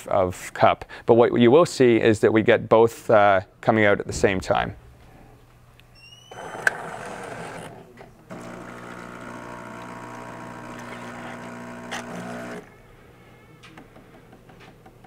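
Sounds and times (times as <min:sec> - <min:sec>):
mechanical pump hum: 0:03.4 - 0:15.0
espresso machine whir: 0:06.3 - 0:12.7.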